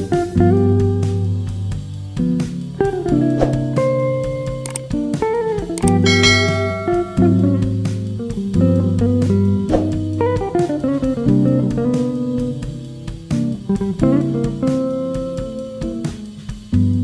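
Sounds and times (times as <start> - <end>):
plucked guitar notes: 0.0 - 17.0
low bass line: 5.9 - 10.2.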